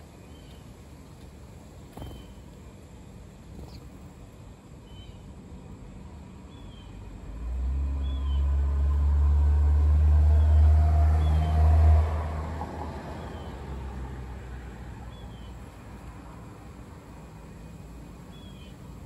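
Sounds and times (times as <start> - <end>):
faint bird chirp: 1.9 - 2.5, 3.5 - 4.0, 4.8 - 5.3, 6.5 - 7.1, 17.5 - 18.9
engine rumble passing by: 1.9 - 19.0.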